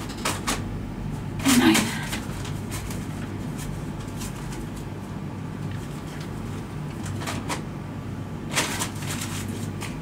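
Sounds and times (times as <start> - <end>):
steady low hum: 0.0 - 10.0
paper rustling: 1.5 - 4.9, 8.5 - 10.0.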